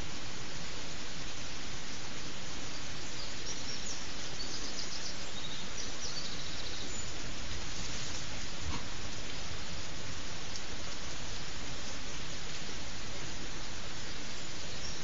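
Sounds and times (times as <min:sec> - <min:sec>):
microphone hiss: 0:00.0 - 0:15.0
faint bird chirps: 0:02.6 - 0:07.5, 0:13.0 - 0:15.0.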